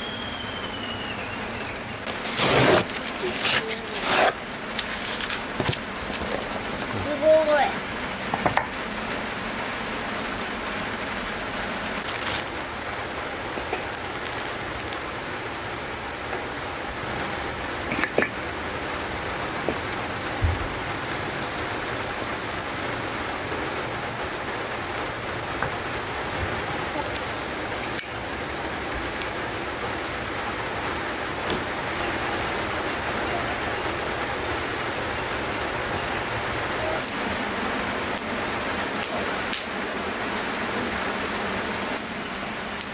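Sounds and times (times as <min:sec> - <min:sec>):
steady outdoor hiss: 0:00.0 - 0:42.9
packing tape tearing: 0:02.0 - 0:07.0, 0:12.0 - 0:12.6, 0:13.8 - 0:15.0
cardboard rustling: 0:02.0 - 0:07.2.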